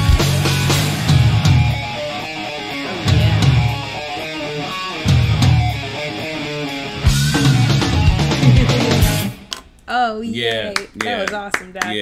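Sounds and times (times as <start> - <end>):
heavy low guitar chords: 0.0 - 9.4
live heavy metal band: 0.0 - 9.4.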